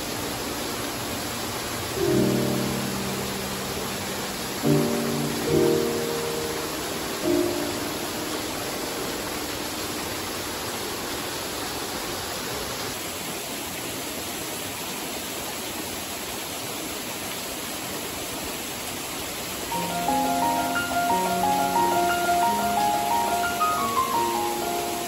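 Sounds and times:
water rushing over rocks: 0.0 - 25.0.

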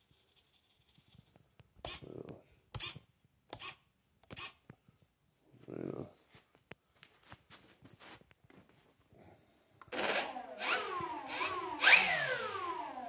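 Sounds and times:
electric motors and propellers whining: 9.9 - 13.0.

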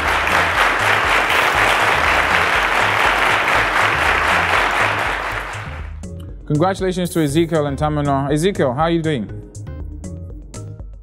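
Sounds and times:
studio audience applauding: 0.0 - 6.0
pulsing bass music: 0.0 - 11.0.

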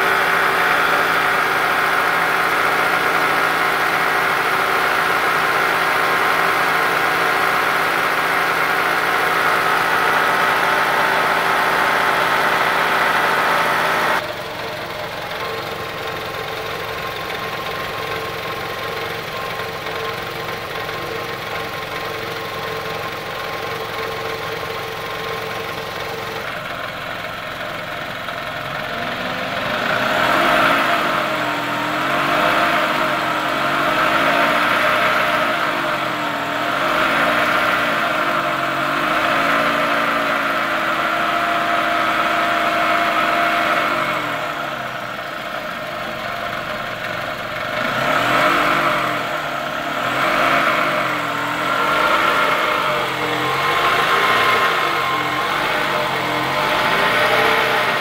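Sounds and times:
car engine idling and revving: 0.0 - 58.0
loud mechanical engine noise: 0.0 - 58.0.

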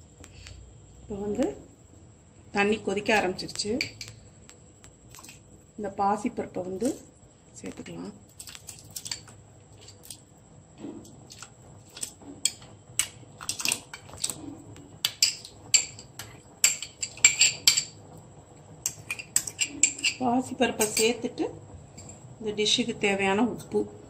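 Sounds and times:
metal spoon clinking on metal bowl: 15.0 - 18.0, 18.8 - 20.2, 20.8 - 21.2.

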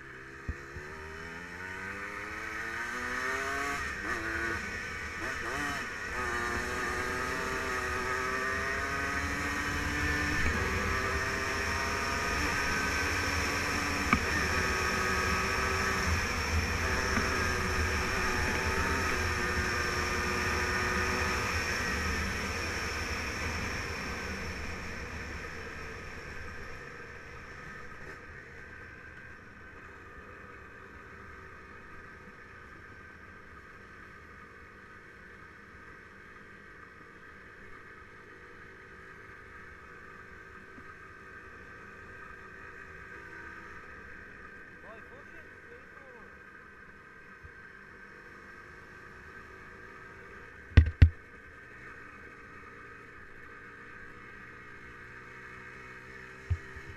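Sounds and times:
quad engine running: 0.0 - 33.1, 47.3 - 56.9.

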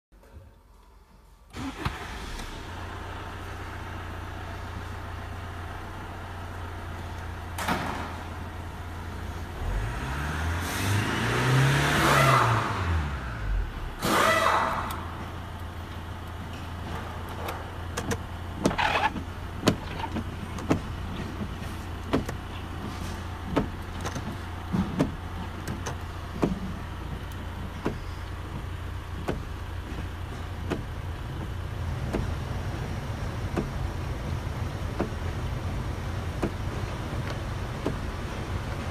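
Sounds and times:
diesel engine idling: 1.6 - 9.9, 13.2 - 38.9
engine revving: 9.5 - 15.3.

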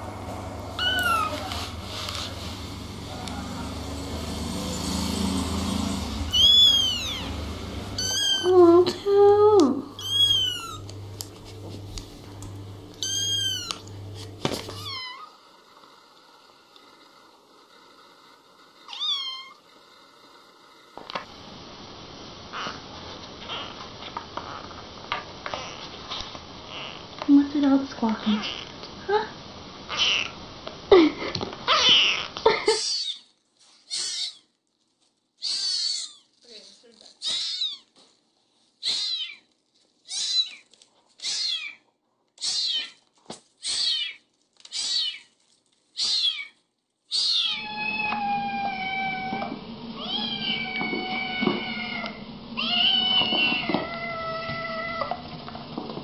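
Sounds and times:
kitten mewing: 0.8 - 1.8, 6.1 - 10.9, 13.0 - 13.9, 33.9 - 34.4, 35.4 - 36.3, 37.2 - 37.9, 38.8 - 39.4, 40.1 - 40.6, 41.2 - 41.8, 42.4 - 43.0, 43.6 - 45.3, 46.0 - 55.2.

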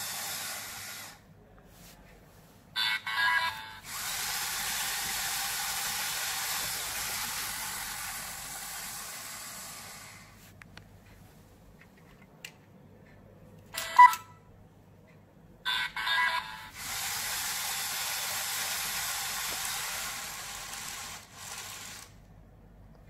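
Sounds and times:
motor whirring reels spinning: 0.0 - 1.2, 3.9 - 10.4, 16.8 - 22.2.

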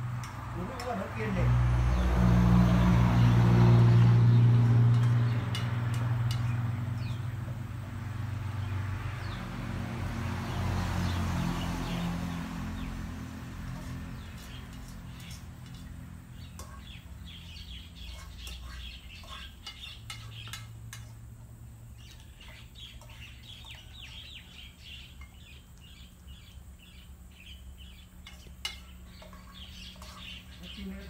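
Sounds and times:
small birds chirping: 0.1 - 31.0
clinks from steel feeding bowls: 18.0 - 21.3.

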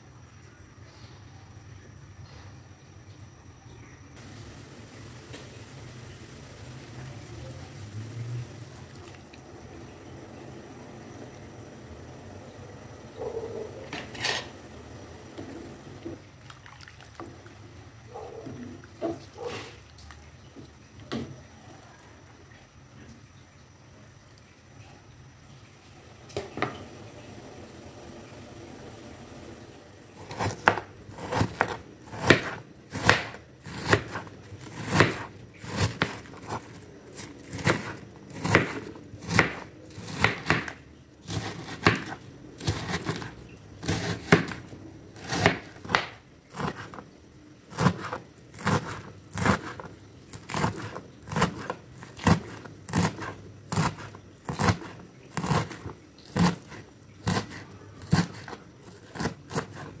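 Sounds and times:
knife slicing on cutting board: 30.2 - 40.7, 41.3 - 44.6, 47.7 - 60.0.

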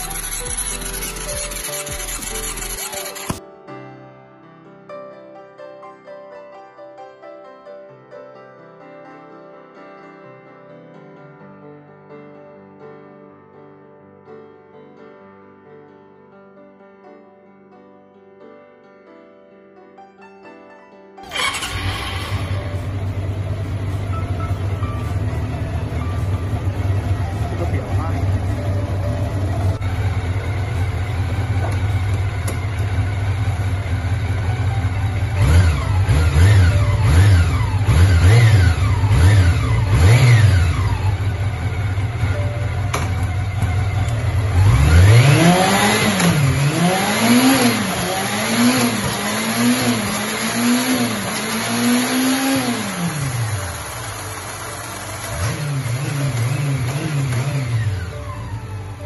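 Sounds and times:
motorcycle engine idling: 0.0 - 3.4, 21.3 - 44.7, 52.6 - 59.0
motorcycle engine revving: 0.0 - 3.4, 21.3 - 59.0.

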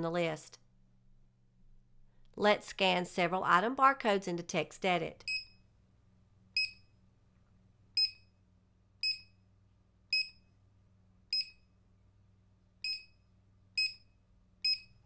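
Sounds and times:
barcode scanner beeping: 8.0 - 8.3, 9.0 - 9.3, 10.1 - 10.4, 11.3 - 11.6, 12.8 - 13.2, 13.8 - 15.0.

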